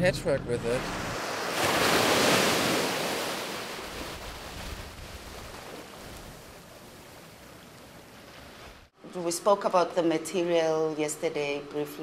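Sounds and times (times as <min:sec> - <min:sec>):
small waves washing onto beach: 0:00.8 - 0:08.9
wind rumble on microphone: 0:03.9 - 0:06.6.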